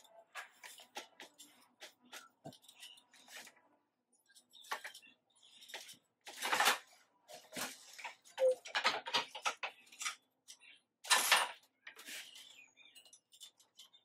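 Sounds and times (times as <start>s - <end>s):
loom wooden clicks and knocks: 4.3s - 14.0s.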